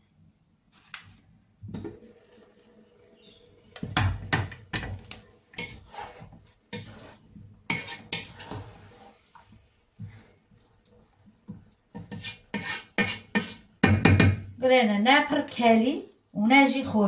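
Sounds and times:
spatula scraping frying pan: 3.2s - 10.4s, 11.9s - 13.8s.

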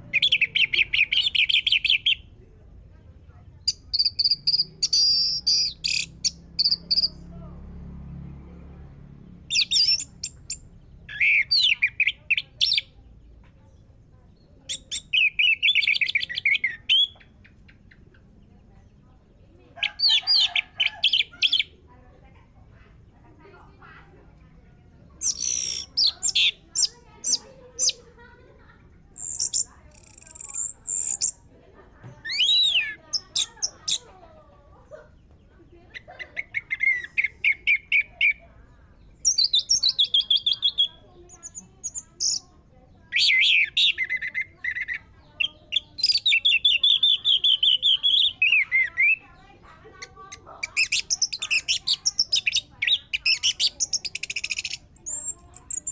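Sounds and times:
bird singing whistles and trills: 3.7s - 7.2s, 14.7s - 18.0s, 32.3s - 33.0s, 39.2s - 42.4s.

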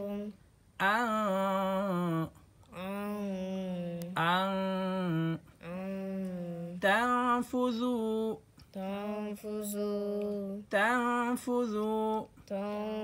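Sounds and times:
person chanting slowly: 0.0s - 13.0s.

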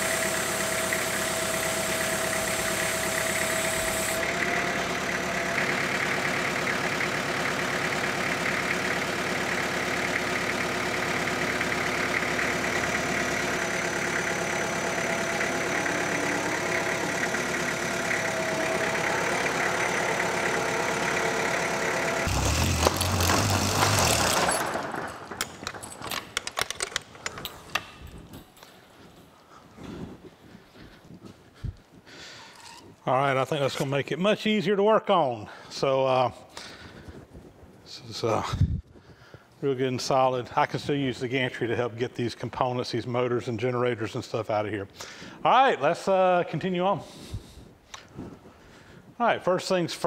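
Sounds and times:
tractor engine running: 0.0s - 31.2s.

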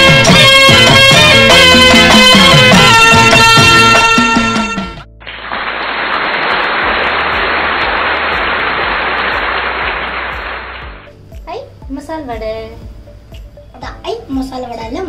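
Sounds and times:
background music: 0.0s - 15.0s
hot oil sizzling: 5.2s - 11.1s.

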